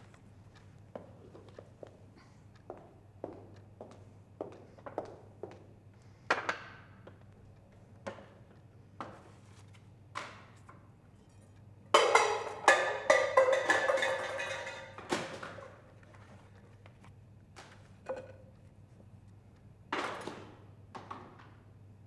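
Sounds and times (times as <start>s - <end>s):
tools clattering onto floor: 10.6s - 15.7s.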